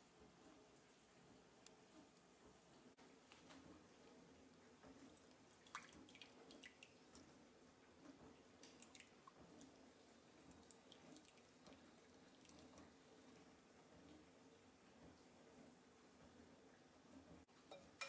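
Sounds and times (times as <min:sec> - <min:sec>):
thick liquid glugging and dripping: 0:04.6 - 0:14.2.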